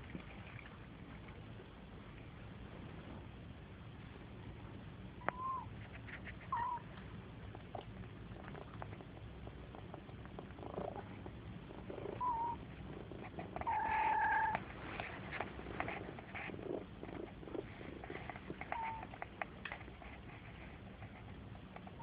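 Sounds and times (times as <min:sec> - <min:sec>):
cat purring: 0:07.4 - 0:22.0
kitten mewing: 0:11.8 - 0:14.6, 0:15.6 - 0:19.2.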